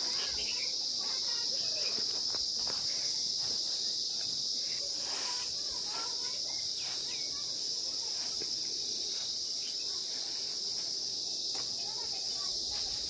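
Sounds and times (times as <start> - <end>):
insects chirring: 0.0 - 13.0
grain rustling scooped by hand: 4.8 - 11.2.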